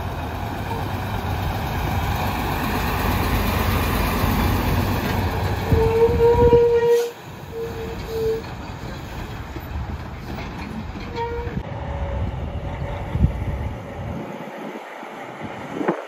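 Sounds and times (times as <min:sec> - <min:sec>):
diesel truck engine rumble: 0:00.0 - 0:16.0
truck air horn blasts: 0:05.7 - 0:08.4.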